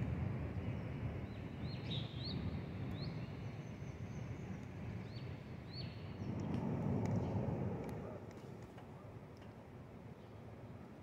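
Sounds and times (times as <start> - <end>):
distant jet airliner rumble: 6.2 - 8.4.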